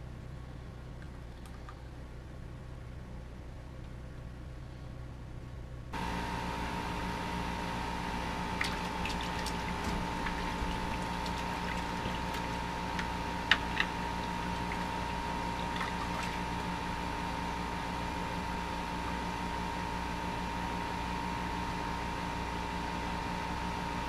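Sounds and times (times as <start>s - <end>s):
steady hum: 0.0s - 24.0s
water trickling and splashing: 8.4s - 17.1s.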